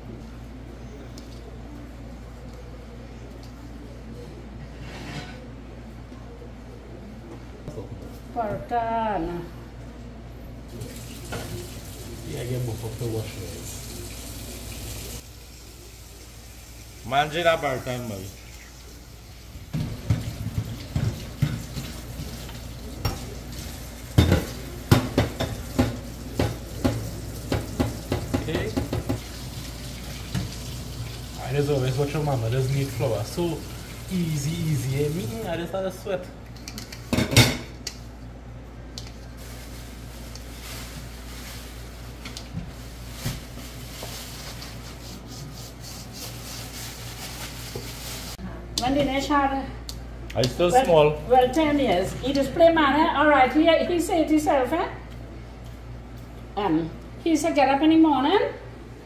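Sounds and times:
hands rubbing dough: 42.8s - 48.4s.

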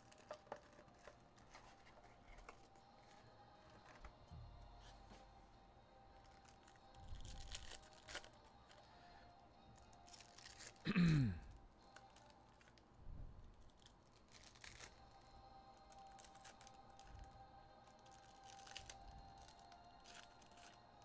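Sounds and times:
foil packs crinkling: 0.0s - 4.1s, 6.2s - 9.0s, 9.8s - 10.9s, 11.8s - 12.8s, 13.5s - 21.0s.

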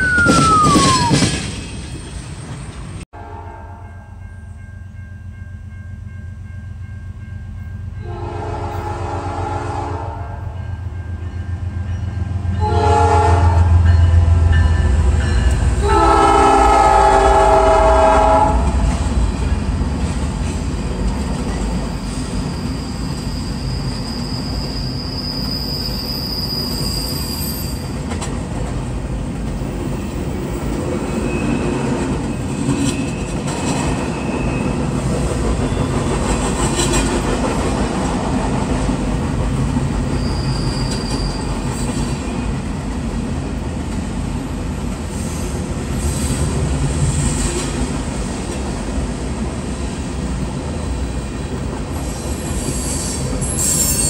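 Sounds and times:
high wheel squeal: 0.0s - 3.0s, 21.9s - 28.0s, 31.1s - 34.9s, 40.0s - 42.5s, 52.0s - 54.0s
train wheels clattering on rails: 0.0s - 3.0s, 18.6s - 25.9s, 27.7s - 54.0s
train horn blasts: 3.1s - 4.2s, 8.0s - 10.8s, 12.5s - 14.6s, 15.7s - 18.9s.

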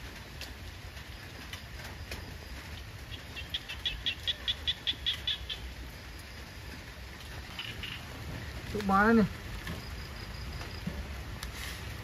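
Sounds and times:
small animal chirping: 3.4s - 5.7s.

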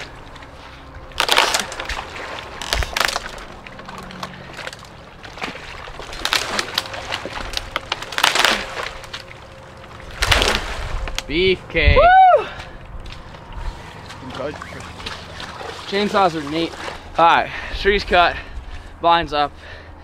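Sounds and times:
branches brushing: 0.0s - 11.3s
tree trunk cracking and snapping: 1.1s - 11.3s.

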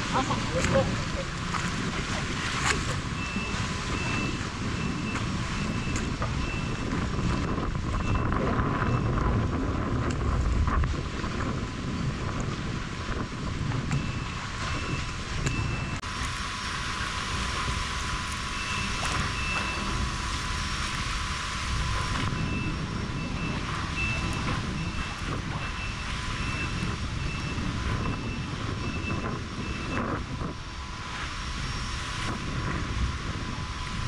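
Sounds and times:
choppy water around boat: 0.0s - 34.0s
wind buffeting microphone: 0.0s - 34.0s
high electronic beep: 3.2s - 9.1s, 22.4s - 30.1s.

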